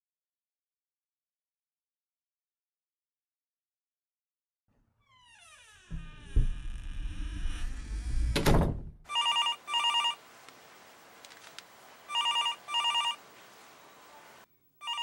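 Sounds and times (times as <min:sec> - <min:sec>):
telephone ringing: 0:09.1 - 0:10.2, 0:12.1 - 0:13.2, 0:14.8 - 0:15.0.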